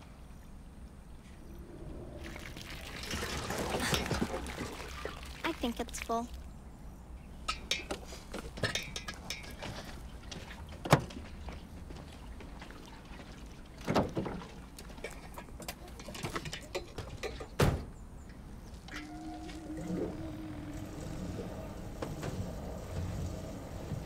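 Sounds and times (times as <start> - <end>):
low steady background noise: 0.0 - 24.0.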